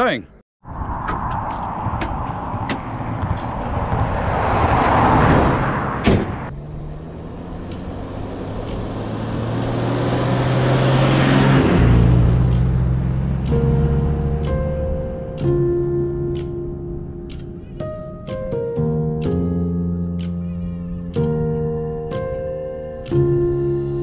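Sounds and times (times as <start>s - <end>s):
vehicle passing on road: 0.6s - 24.0s
engine approaching on dirt road: 0.7s - 17.7s.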